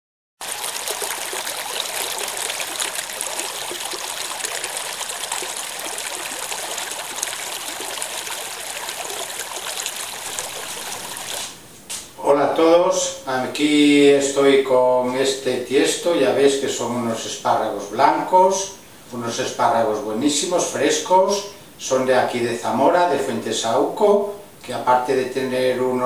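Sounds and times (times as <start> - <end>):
running water rushing: 0.4 - 11.6.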